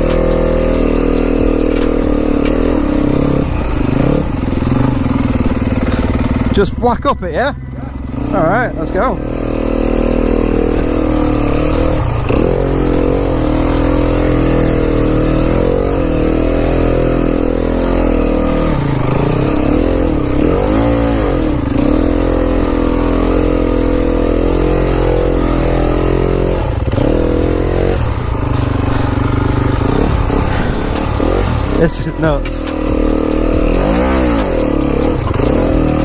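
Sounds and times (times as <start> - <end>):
dirt bike engine revving: 0.0 - 36.0.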